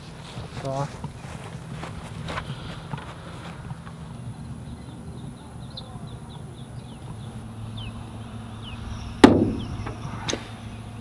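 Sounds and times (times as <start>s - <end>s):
steady low hum: 0.0s - 11.0s
faint bird chirps: 4.6s - 11.0s.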